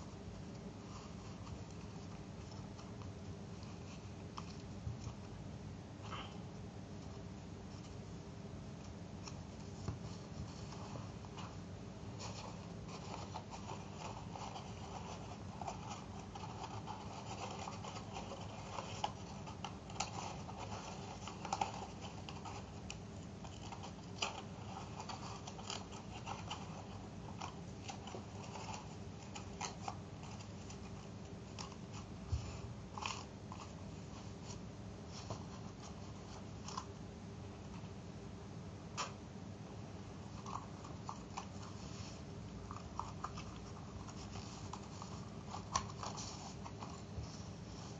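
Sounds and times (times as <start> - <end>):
low background hum: 0.0 - 47.9
paper being folded: 40.4 - 47.9.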